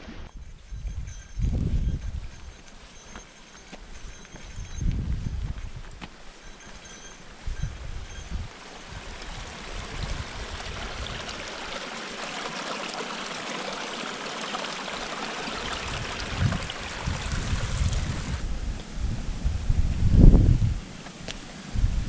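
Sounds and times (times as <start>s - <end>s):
stream splashing over rocks: 8.5s - 18.4s.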